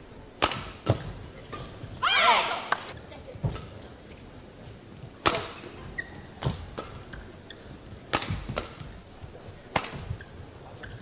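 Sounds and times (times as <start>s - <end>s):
rackets striking shuttlecock: 0.4s - 1.8s, 5.2s - 9.0s, 9.6s - 11.0s.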